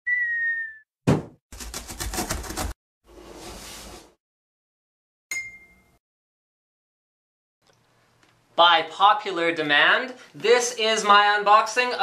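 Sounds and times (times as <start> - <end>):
high whistle-like tone: 0.0 - 0.9
heavy thump: 1.1 - 1.4
bright ding: 5.3 - 6.0.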